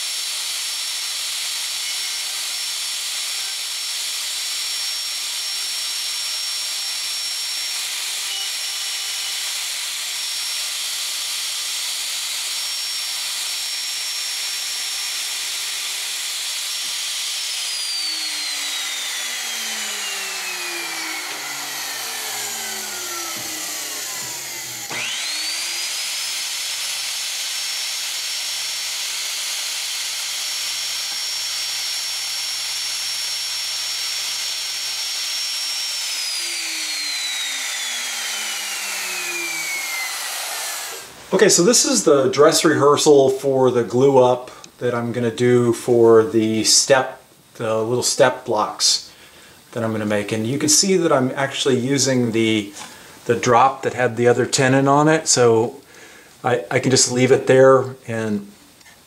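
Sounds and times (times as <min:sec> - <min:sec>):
router whining: 0:00.0 - 0:43.5.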